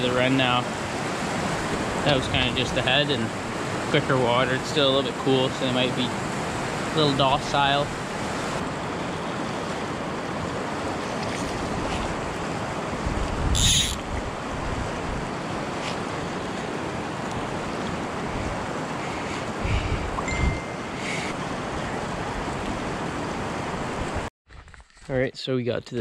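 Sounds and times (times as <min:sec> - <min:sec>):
wind buffeting microphone: 0:09.9 - 0:24.3.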